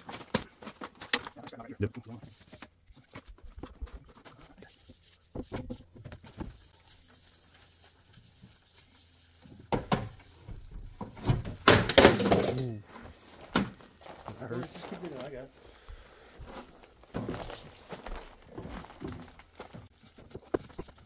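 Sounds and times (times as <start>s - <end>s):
handling knocks and clunks: 9.5s - 21.0s.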